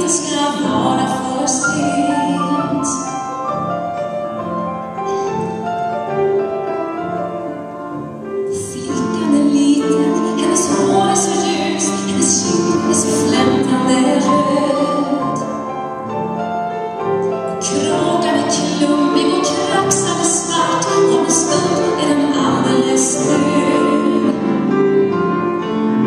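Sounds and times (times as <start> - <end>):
woman singing: 0.0 - 3.2, 8.5 - 15.5, 17.5 - 24.6
grand piano: 0.0 - 26.0.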